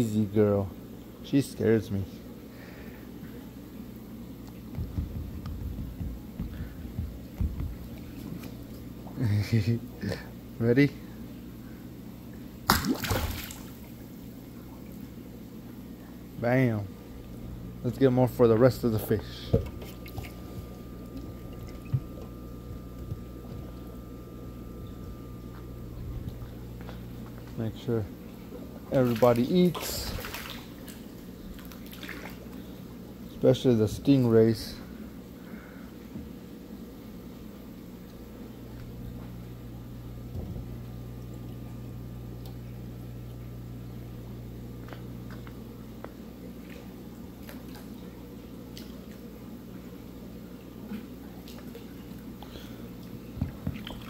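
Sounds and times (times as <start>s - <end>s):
fish tank pumps humming: 0.0s - 54.0s
plastic tub knocking on wood: 4.7s - 7.9s
water trickling: 19.8s - 24.0s.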